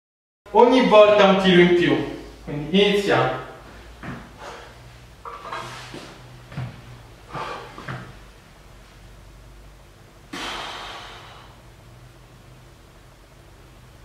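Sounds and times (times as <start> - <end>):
person exhaling forcefully: 7.3 - 8.0, 10.3 - 11.7.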